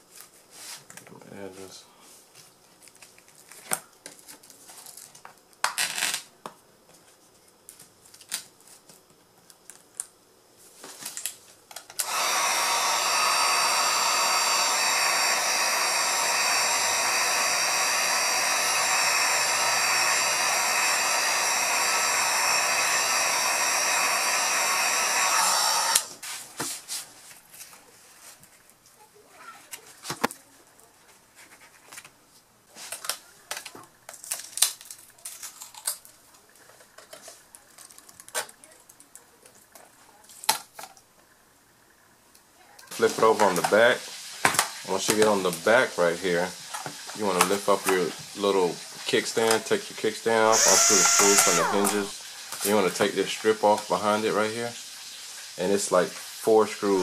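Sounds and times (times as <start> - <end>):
heat gun blowing: 12.0 - 26.2, 50.3 - 54.4.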